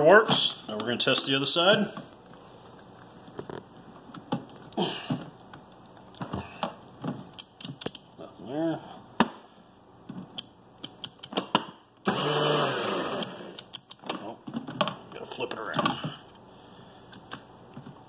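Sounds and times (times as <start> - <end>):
electric motor whirring: 12.1 - 13.6.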